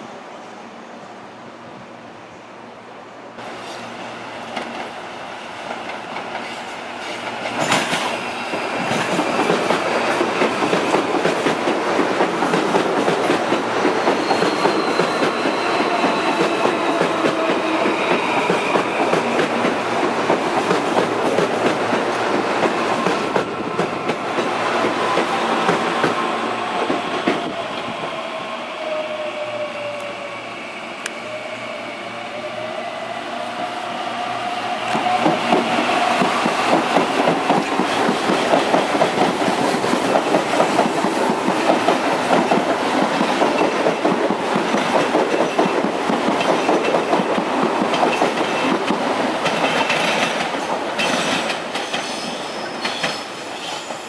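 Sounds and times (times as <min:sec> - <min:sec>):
train whine: 0:00.0 - 0:54.0
train wheels clattering over rails: 0:05.7 - 0:26.2, 0:35.0 - 0:54.0.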